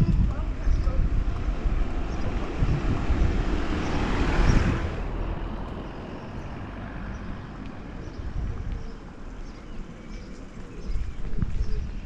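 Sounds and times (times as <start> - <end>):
wind rumble on microphone: 0.0 - 12.0
car passing by: 1.3 - 8.0.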